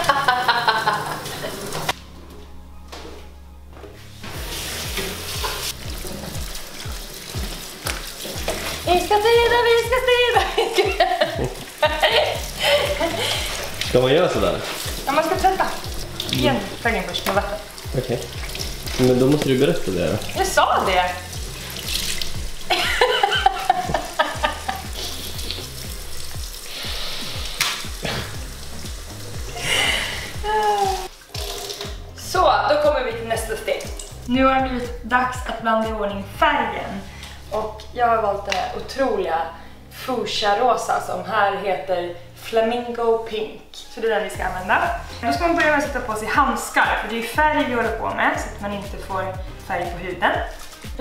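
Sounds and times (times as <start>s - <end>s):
tap water running into sink: 0.0s - 2.0s, 4.2s - 34.9s, 44.8s - 51.0s
clothes rinsed by hand: 0.0s - 2.2s, 4.0s - 34.9s, 44.4s - 51.0s
background music with beat: 1.3s - 36.6s, 44.4s - 51.0s.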